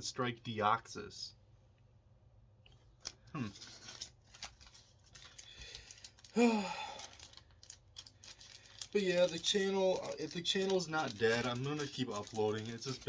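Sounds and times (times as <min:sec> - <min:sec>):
cards rustling and clicking: 0:02.7 - 0:13.0
foil pack crinkling and tearing: 0:03.0 - 0:13.0.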